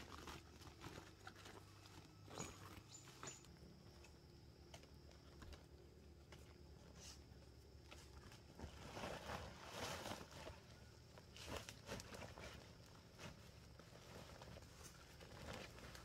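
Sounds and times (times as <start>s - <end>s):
plastic sack rustling: 0.0s - 3.0s, 8.4s - 16.0s.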